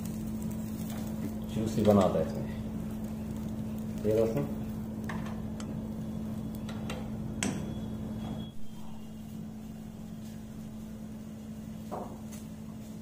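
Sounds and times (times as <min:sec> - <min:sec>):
metal skewers clicking on grill: 0:00.0 - 0:07.6
steady low hum: 0:00.0 - 0:13.0.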